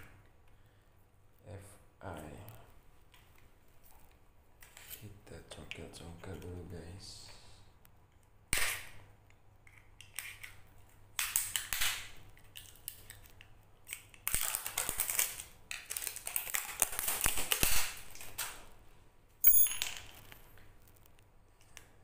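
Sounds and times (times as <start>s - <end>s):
plastic wrap crinkling: 11.3s - 18.7s.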